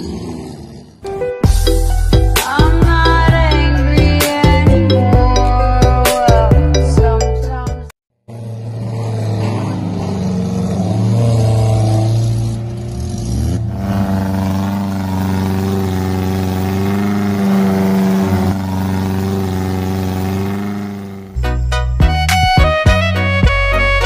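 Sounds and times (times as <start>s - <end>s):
off-road vehicle engine revving: 0.0s - 1.1s, 8.2s - 21.4s.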